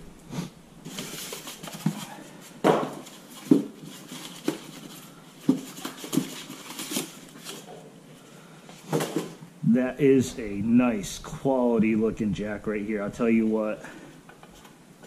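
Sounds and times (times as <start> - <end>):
styrofoam rubbing and squeaking: 3.0 - 7.7.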